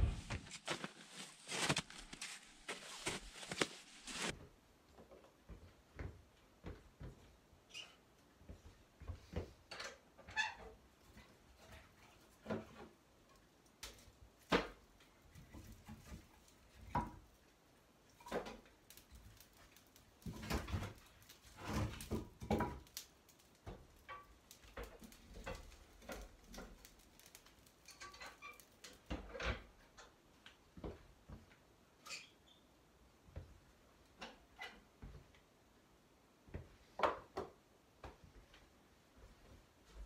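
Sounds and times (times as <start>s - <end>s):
logs knocking and clunking: 20.2s - 30.2s.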